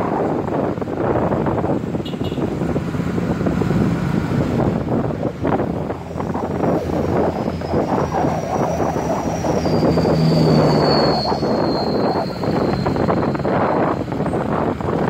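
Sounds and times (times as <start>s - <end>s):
vehicle road and engine noise: 0.0s - 15.0s.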